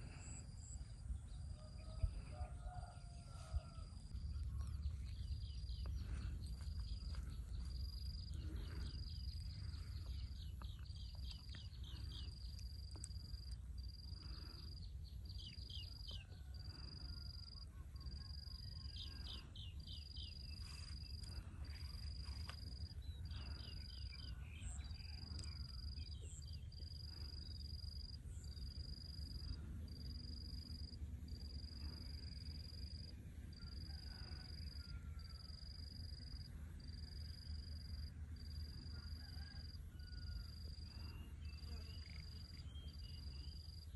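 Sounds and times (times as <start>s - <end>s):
low rumble: 0.0s - 16.3s.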